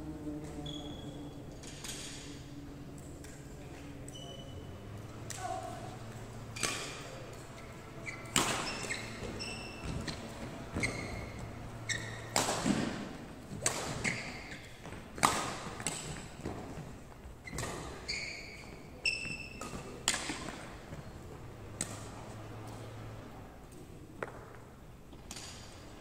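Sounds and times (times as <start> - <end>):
shoes squeaking on wooden court: 0.5 - 2.4, 3.4 - 23.2
rackets hitting shuttlecock: 6.1 - 16.8, 19.1 - 21.0, 21.6 - 23.1, 24.2 - 25.9.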